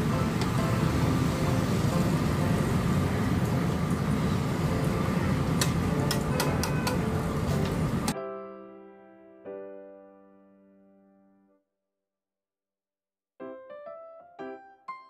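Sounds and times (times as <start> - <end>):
food sizzling in hot oil: 0.0 - 8.1
metal ladle clacking on pan: 5.6 - 7.0.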